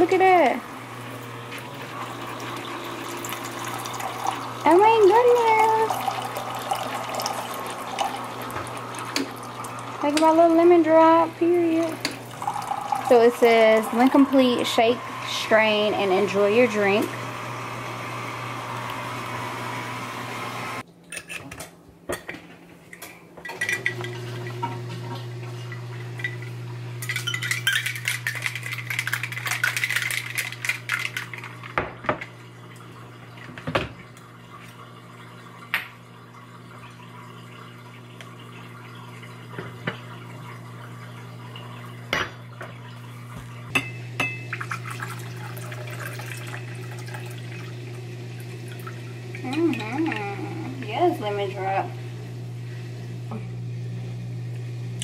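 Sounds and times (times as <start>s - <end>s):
drink pouring into glass: 1.6s - 10.1s, 11.9s - 14.5s, 44.2s - 50.2s
ice rattling in cocktail shaker: 26.2s - 31.8s.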